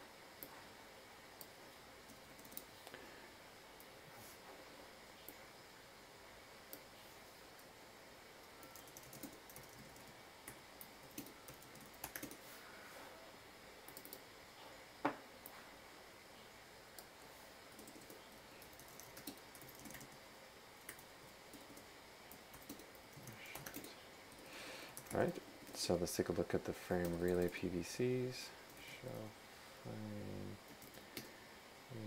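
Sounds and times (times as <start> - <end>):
faint keyboard typing: 1.4 - 3.0, 6.6 - 7.7, 8.4 - 12.6, 13.8 - 14.7, 16.9 - 29.2, 30.2 - 31.4.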